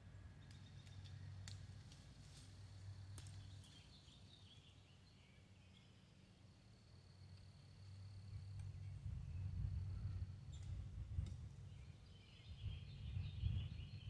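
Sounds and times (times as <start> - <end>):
steady low hum: 0.0 - 14.0
bird chirping: 0.3 - 1.5, 3.1 - 6.5, 8.3 - 14.0.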